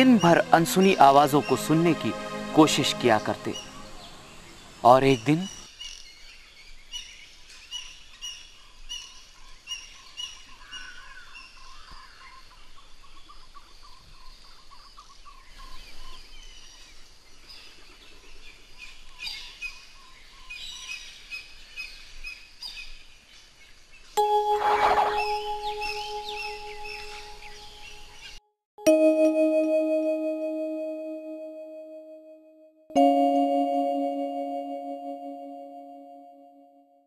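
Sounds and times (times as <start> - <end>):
held musical note: 0.0 - 4.5, 24.2 - 27.8
birds chirping: 0.0 - 6.3, 24.5 - 28.4
thin held warbling note: 24.2 - 27.8.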